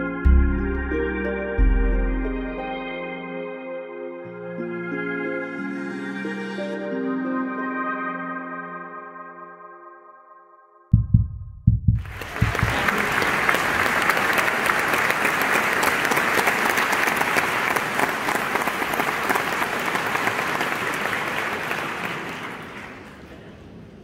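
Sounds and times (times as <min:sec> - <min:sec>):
low thumps: 0:10.9 - 0:12.8
audience applauding: 0:12.0 - 0:23.7.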